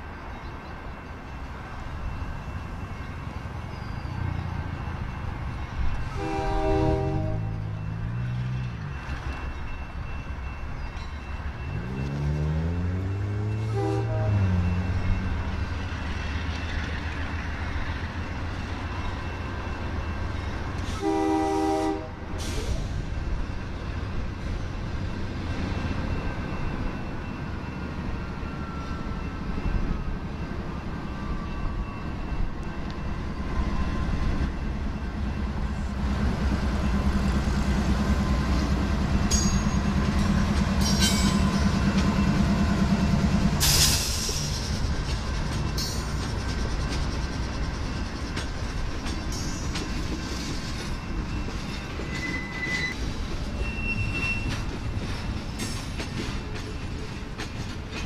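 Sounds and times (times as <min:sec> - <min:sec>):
diesel locomotives rumbling: 0:00.0 - 0:58.0
train horn blast: 0:06.1 - 0:07.7, 0:13.5 - 0:14.8, 0:20.9 - 0:22.4
faint wheel squeal: 0:50.7 - 0:54.7.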